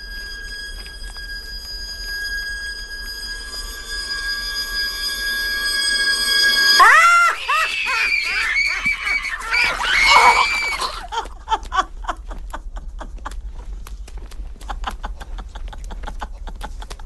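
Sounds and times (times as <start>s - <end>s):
cackling cry and shriek: 6.7s - 11.1s
wet clicks and smacks: 13.3s - 14.8s.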